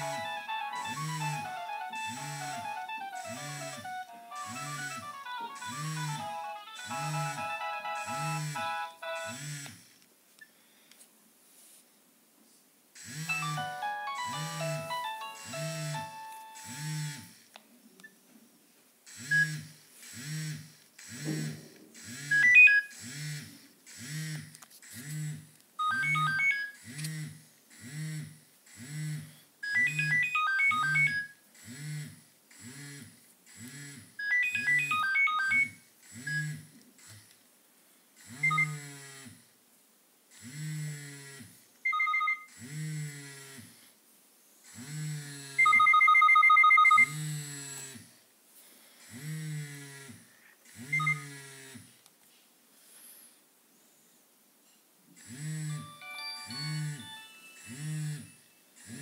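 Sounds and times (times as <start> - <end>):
phone beeps: 0.0 - 9.4, 13.3 - 17.1, 22.3 - 22.9, 25.8 - 26.8, 29.6 - 31.4, 34.2 - 36.6, 38.4 - 38.8, 41.8 - 42.5, 45.6 - 47.2, 50.9 - 51.3, 55.7 - 58.5
polyphonic ringtone melody: 0.0 - 9.4, 13.2 - 17.2, 25.8 - 26.7, 29.7 - 31.2, 34.2 - 35.7, 45.6 - 47.1, 55.7 - 58.6
rapid two-note beeping: 0.0 - 9.4, 13.2 - 17.2.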